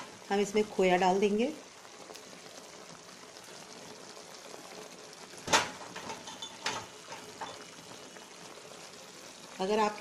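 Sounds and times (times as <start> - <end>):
faint sizzle in a pan: 0.0 - 10.0.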